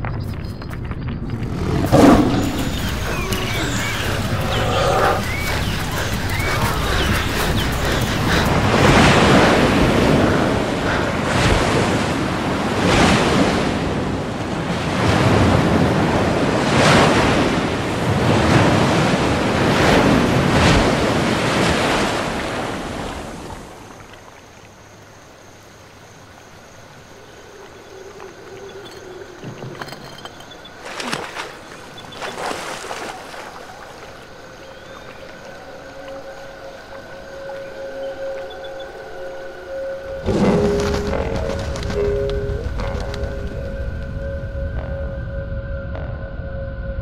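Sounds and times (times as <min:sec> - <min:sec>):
sea waves breaking: 0:01.4 - 0:24.6, 0:30.6 - 0:36.0, 0:40.0 - 0:44.2.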